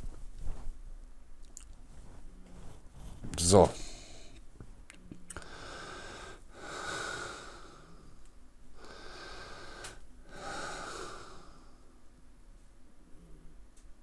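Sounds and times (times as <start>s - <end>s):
person breathing through nose: 5.4s - 8.2s, 8.8s - 12.0s.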